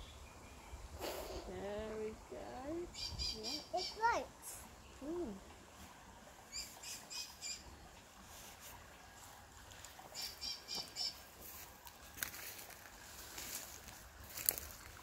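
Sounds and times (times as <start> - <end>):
bird calling: 6.5 - 7.7, 10.2 - 11.3.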